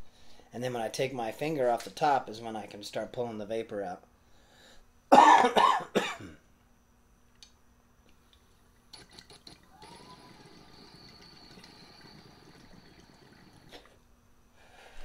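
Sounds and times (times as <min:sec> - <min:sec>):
man coughing: 0:05.1 - 0:06.4
water bubbling hiss: 0:09.0 - 0:13.9.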